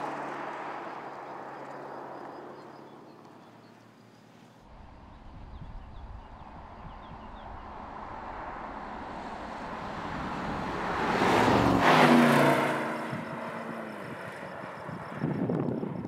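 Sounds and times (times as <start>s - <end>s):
car engine passing by: 6.4s - 15.7s.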